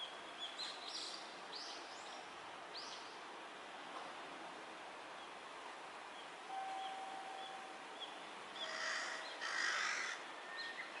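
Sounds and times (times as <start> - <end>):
outdoor background noise: 0.0 - 11.0
faint high chirps: 6.5 - 7.8.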